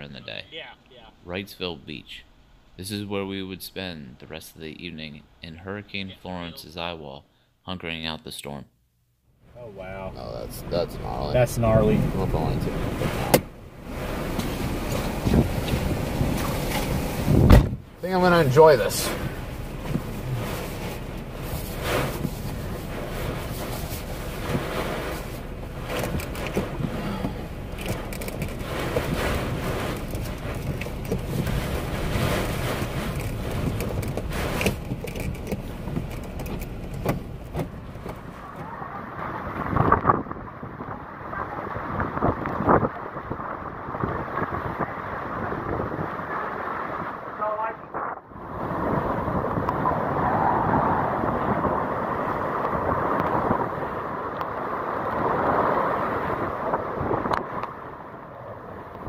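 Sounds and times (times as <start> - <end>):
driving rain: 9.4 - 59.0
strong wind buffeting microphone: 10.1 - 59.0
sharp ticks and knocks: 32.8 - 38.2.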